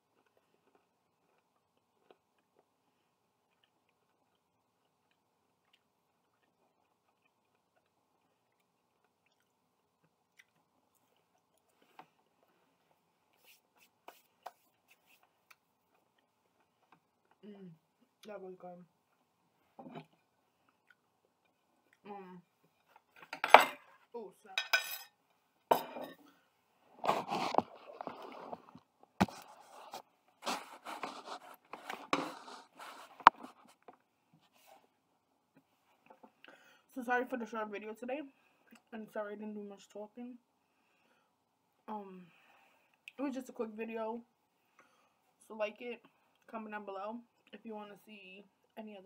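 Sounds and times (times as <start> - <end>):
chewing crisp food: 0.0 - 13.5, 15.2 - 17.4, 20.2 - 22.0
handling scraping and rubbing: 27.0 - 33.9.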